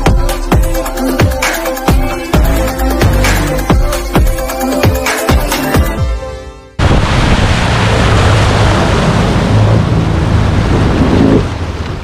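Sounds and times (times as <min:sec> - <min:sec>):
wind and water rushing: 0:06.8 - 0:12.0.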